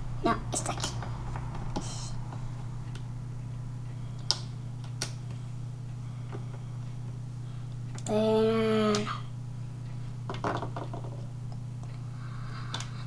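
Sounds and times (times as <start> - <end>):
steady low hum: 0.0 - 13.0
figurines tapping on wooden desk: 10.3 - 11.2.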